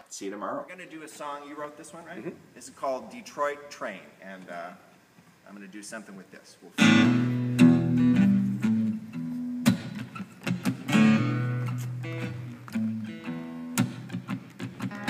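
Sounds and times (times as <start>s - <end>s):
acoustic guitar strumming chords: 6.8s - 15.0s.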